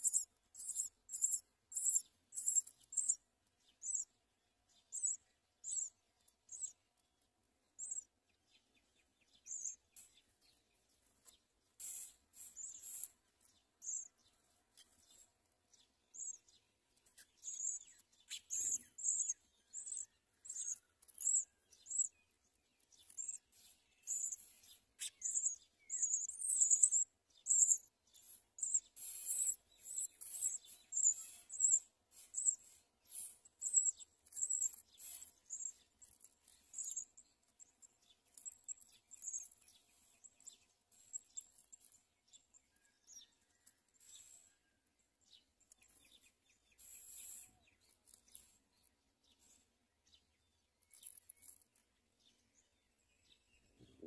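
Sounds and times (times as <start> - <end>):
nestlings cheeping: 25.0 - 37.2.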